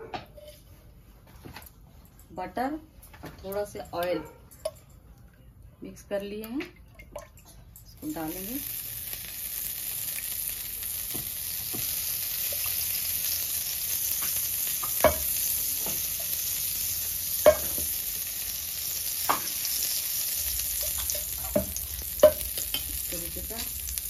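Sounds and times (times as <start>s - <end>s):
butter sizzling on griddle: 8.0s - 24.0s.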